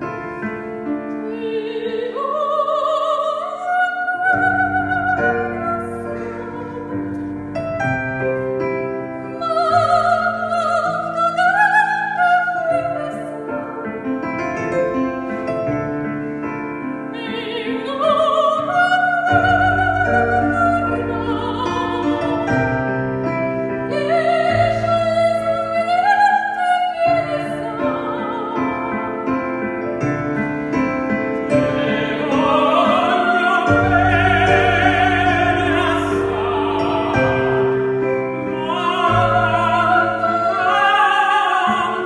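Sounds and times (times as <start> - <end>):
piano accompaniment: 0.0 - 42.0
operatic solo singing: 31.6 - 42.0.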